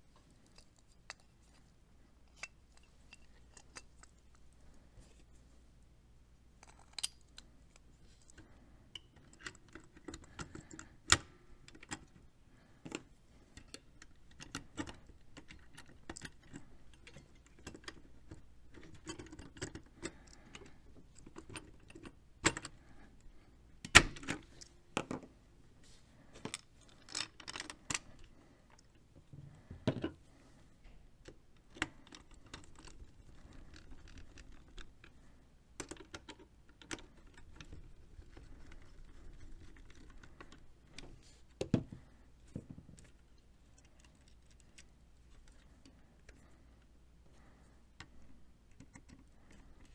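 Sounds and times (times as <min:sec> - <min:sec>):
clicks and clatter of plastic and metal: 0:12.8 - 0:22.8, 0:31.2 - 0:35.2, 0:35.8 - 0:46.5.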